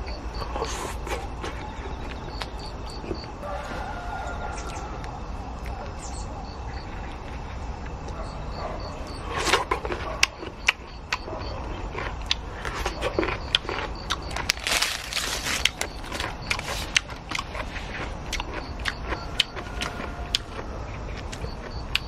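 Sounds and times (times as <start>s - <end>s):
paper rustling: 14.5s - 15.9s.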